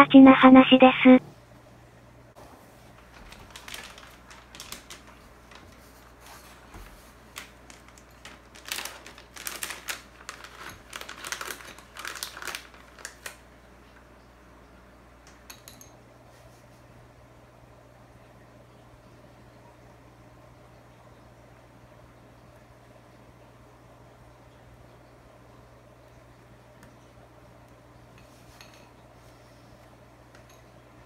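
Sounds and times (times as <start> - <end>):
plastic bag crinkling: 2.9 - 13.5.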